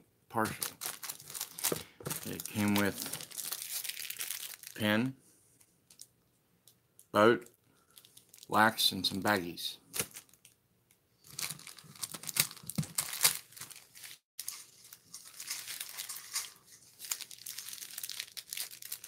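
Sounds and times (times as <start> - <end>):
plastic packaging crinkling: 0.5 - 4.8, 7.9 - 8.5, 9.9 - 10.6, 11.2 - 19.0.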